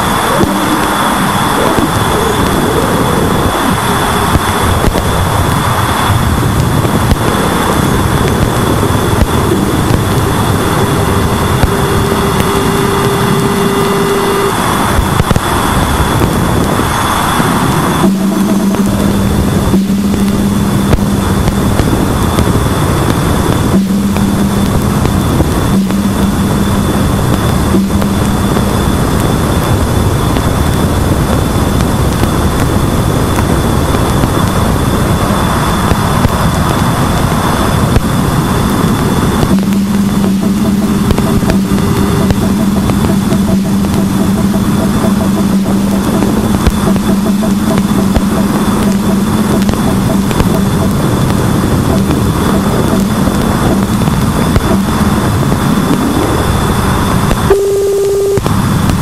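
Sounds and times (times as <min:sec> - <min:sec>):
dense hiss and crackle: 0:00.0 - 0:59.0
low hum: 0:00.0 - 0:59.0
lower steady tone: 0:00.0 - 0:59.0
steady high tone: 0:00.0 - 0:59.0
thin high tone: 0:57.4 - 0:58.5.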